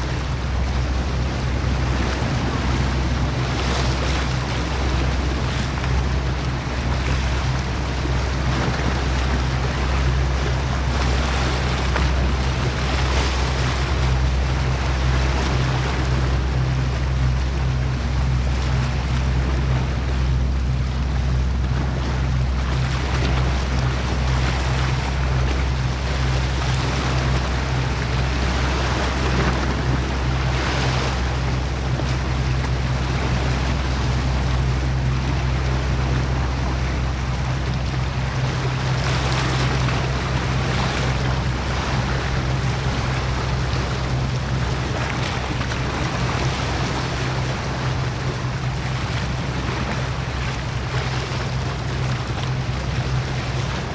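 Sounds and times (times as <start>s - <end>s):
ship engines droning: 0.0s - 53.9s
waves washing: 0.0s - 53.9s.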